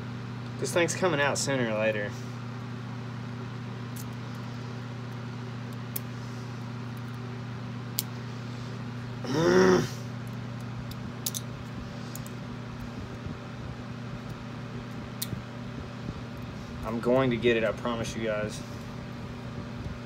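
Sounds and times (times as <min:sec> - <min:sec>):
steady low hum: 0:00.0 - 0:20.0
person groaning: 0:09.2 - 0:10.1.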